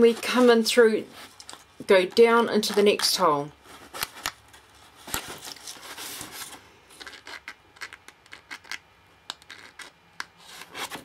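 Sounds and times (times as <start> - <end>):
cardstock rustling and scraping: 0.0 - 8.8, 9.4 - 11.0.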